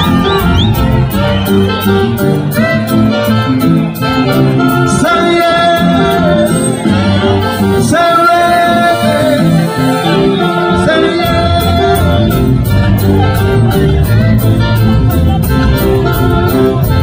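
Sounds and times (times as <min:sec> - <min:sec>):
keyboards: 0:00.0 - 0:17.0
man singing into microphone: 0:04.6 - 0:17.0.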